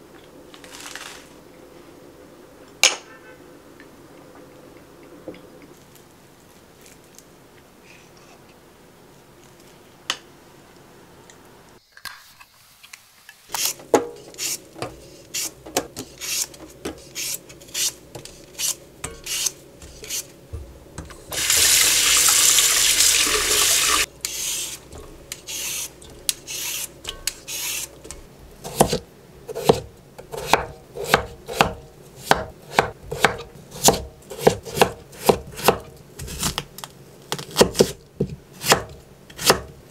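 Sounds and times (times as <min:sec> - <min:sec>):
peeler scraping potatoes: 0:13.5 - 0:20.3, 0:21.3 - 0:36.6
knife chopping on wooden board: 0:28.6 - 0:36.6, 0:37.4 - 0:39.7.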